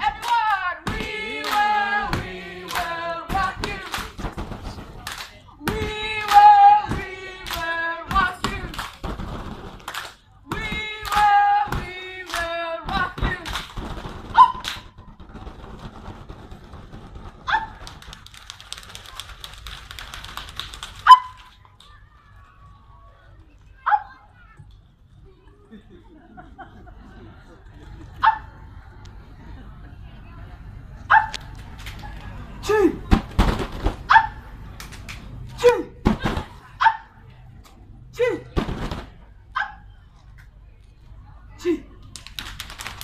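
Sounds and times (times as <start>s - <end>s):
people clapping and slapping hands: 0.0s - 22.4s, 31.3s - 32.4s, 33.0s - 36.5s, 42.0s - 43.0s.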